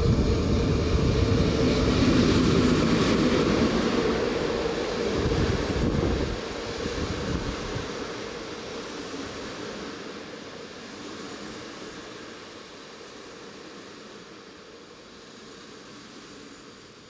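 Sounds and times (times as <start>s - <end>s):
train wheels rushing on rails: 0.0s - 10.2s.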